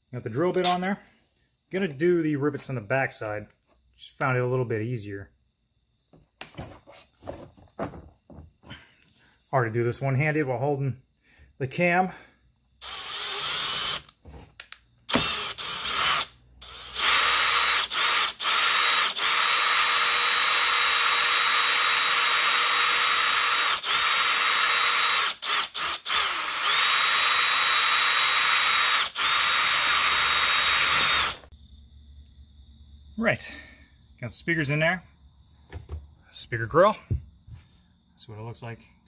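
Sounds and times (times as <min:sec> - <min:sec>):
power drill whining: 0:00.6 - 0:00.9, 0:12.8 - 0:14.1, 0:15.1 - 0:31.5.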